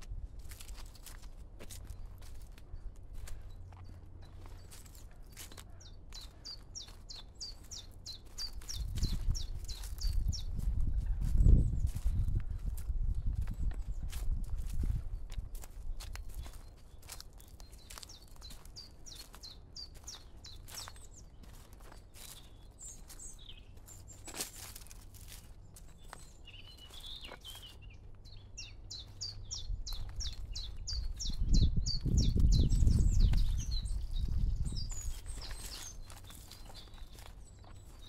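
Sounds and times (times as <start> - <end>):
footsteps on a path: 0.0 - 38.0
songbird singing: 0.4 - 38.0.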